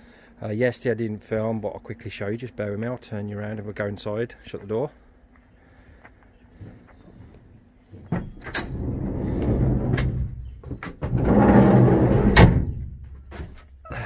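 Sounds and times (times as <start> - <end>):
door shutting clunk: 8.1 - 13.7
sliding door rolling on track: 8.3 - 10.4, 11.0 - 12.6.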